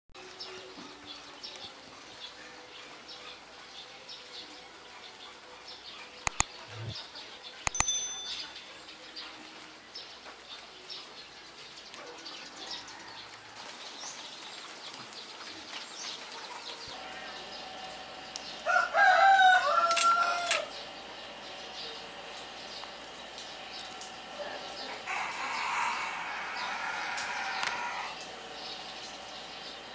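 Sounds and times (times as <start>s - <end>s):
sharp click: 6.3s - 7.0s, 7.7s - 8.5s
brief high chime: 7.7s - 8.6s
rooster crowing: 18.6s - 20.7s, 25.0s - 28.2s.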